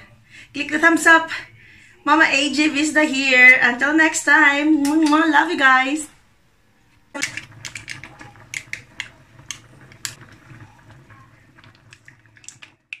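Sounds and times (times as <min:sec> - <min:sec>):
small clicks and pops: 0:07.1 - 0:13.0.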